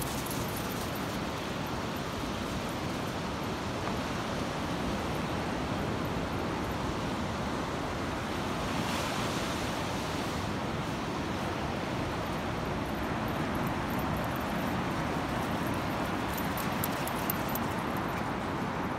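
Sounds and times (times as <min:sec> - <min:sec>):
surf washing up a beach: 0:00.0 - 0:18.9.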